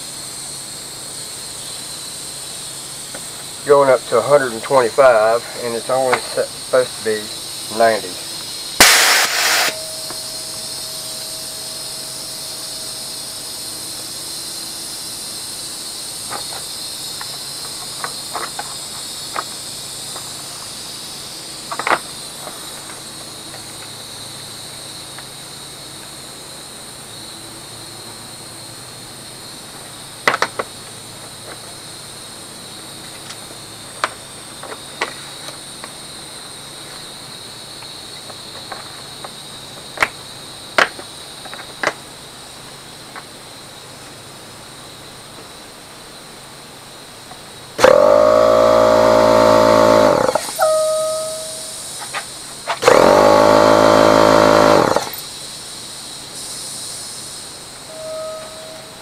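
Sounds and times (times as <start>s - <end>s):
air compressor hissing: 6.3s - 21.6s, 47.8s - 59.0s
burst of escaping air: 8.8s - 11.0s.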